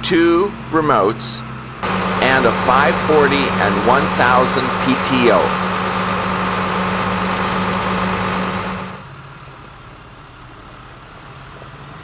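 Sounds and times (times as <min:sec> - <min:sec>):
tractor diesel engine idling: 0:01.8 - 0:09.0.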